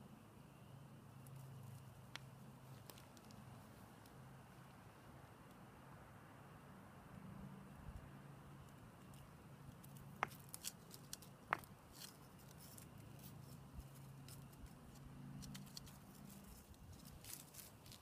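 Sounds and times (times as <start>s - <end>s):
low steady hum: 0.0s - 18.0s
dry leaves crackling: 9.8s - 18.0s.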